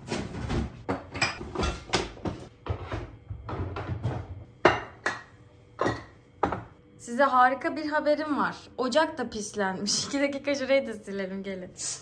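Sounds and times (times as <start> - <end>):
objects knocking on kitchen counter: 0.0 - 6.8.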